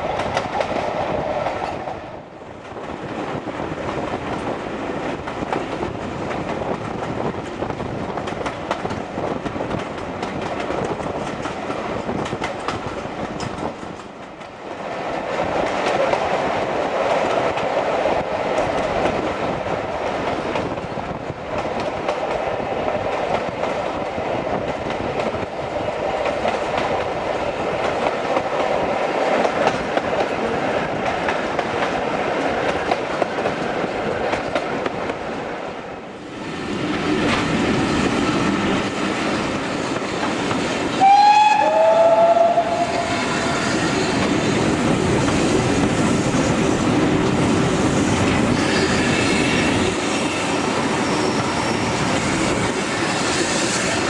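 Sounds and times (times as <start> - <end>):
train running on tracks: 0.0 - 54.0
steam locomotive whistle: 41.0 - 43.8.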